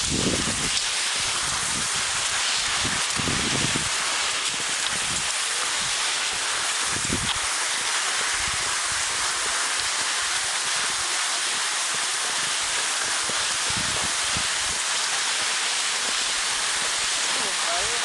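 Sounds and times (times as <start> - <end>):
wind buffeting microphone: 0.0 - 6.1, 6.8 - 7.5, 8.2 - 9.5, 13.2 - 14.8
skis sliding over snow: 0.0 - 18.0.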